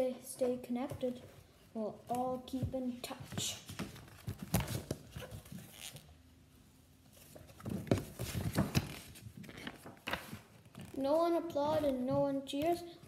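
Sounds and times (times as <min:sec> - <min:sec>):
book pages turning: 0:07.1 - 0:11.1.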